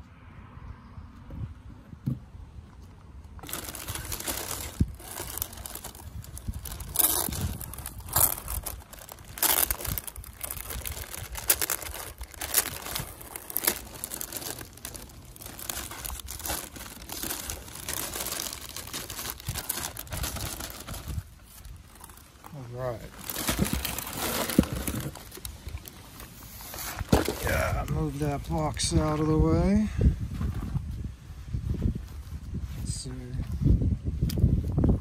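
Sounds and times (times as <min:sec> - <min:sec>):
tissue paper and plastic crinkling: 0:03.4 - 0:29.0.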